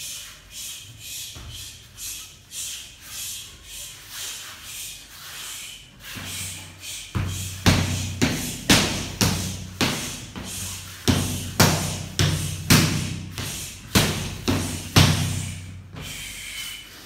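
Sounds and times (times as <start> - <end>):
steady low hum: 0.0 - 16.6
wooden staff striking punching dummy: 7.2 - 15.8.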